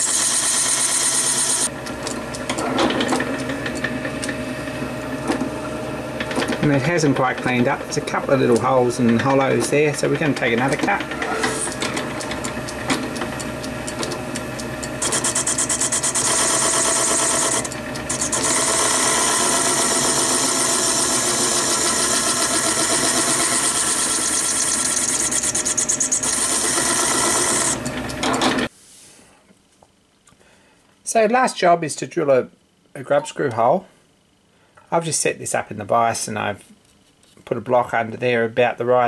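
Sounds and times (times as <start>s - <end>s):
lathe whirring: 0.0s - 28.7s
lathe cutting metal: 10.6s - 28.6s.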